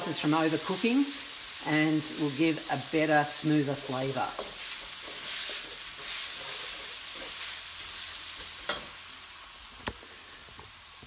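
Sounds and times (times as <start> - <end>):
food sizzling in a wok: 0.0 - 11.0.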